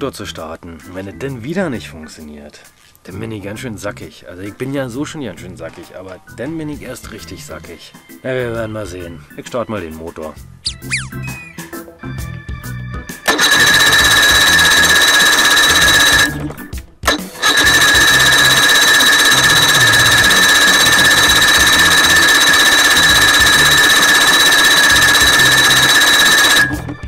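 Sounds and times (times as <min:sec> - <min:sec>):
electric starter cranking engine: 0:13.2 - 0:27.0.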